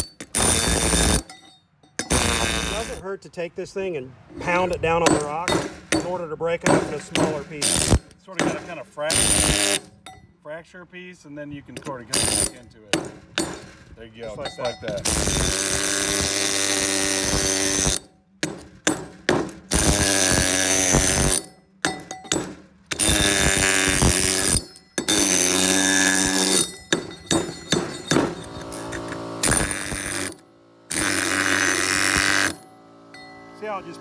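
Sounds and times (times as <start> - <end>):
pneumatic air hammer hammering: 0.0 - 3.0, 4.5 - 10.2, 11.7 - 33.7
bit knocking on rock and steel: 5.0 - 10.2, 11.8 - 15.6, 17.8 - 28.7.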